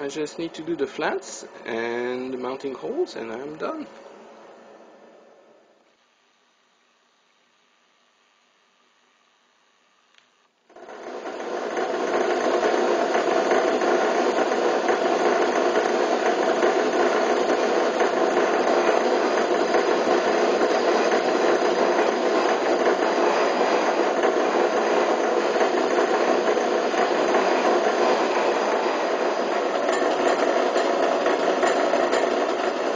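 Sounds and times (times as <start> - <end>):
milling machine cutting metal: 10.7 - 32.9.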